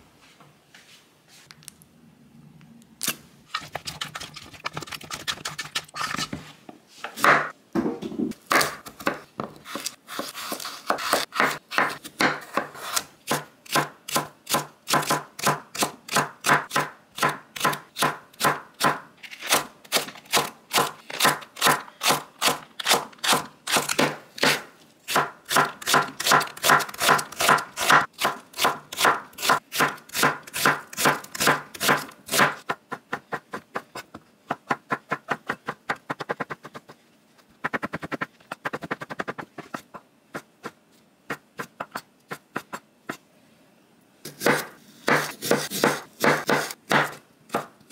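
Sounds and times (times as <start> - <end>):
knife chopping on wooden board: 8.5 - 19.0, 22.9 - 33.9, 44.3 - 47.7.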